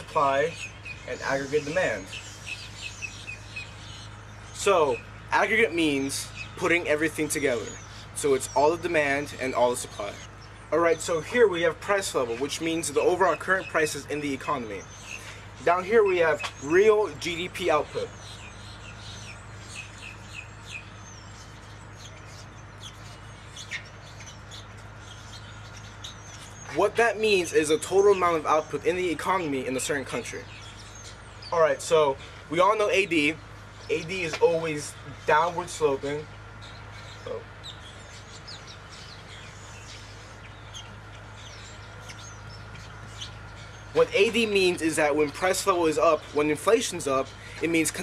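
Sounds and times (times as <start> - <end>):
small birds chirping: 0.0 - 48.0
steady low hum: 0.0 - 48.0.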